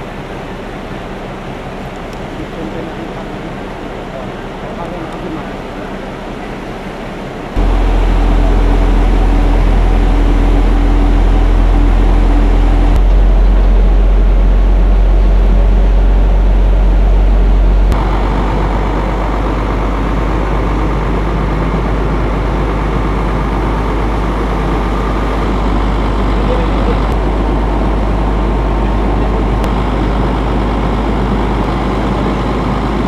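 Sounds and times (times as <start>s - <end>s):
truck engine rumble: 0.0s - 33.0s
water rushing: 7.6s - 33.0s.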